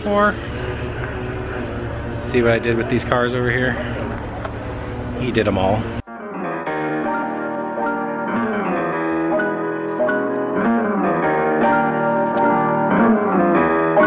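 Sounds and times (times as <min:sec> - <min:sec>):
piano music: 0:06.0 - 0:14.0.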